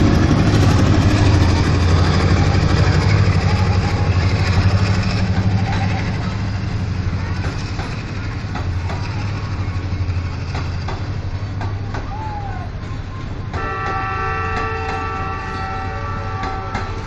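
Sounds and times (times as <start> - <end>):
low engine hum: 0.0 - 13.4
train wheels clicking over rail joints: 0.0 - 17.0
train horn blast: 13.5 - 17.0.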